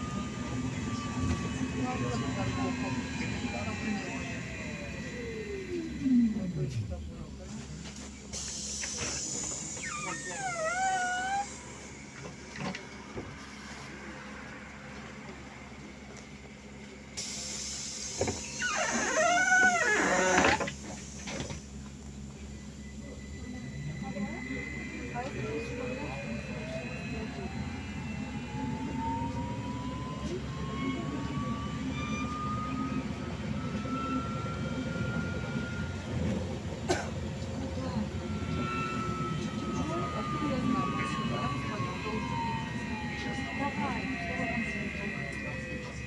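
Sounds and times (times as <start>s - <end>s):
low rumble of ride: 0.0s - 46.0s
trolleybus humming: 0.0s - 46.0s
hiss: 8.3s - 10.2s, 17.2s - 19.2s
high whining cry: 9.8s - 11.6s.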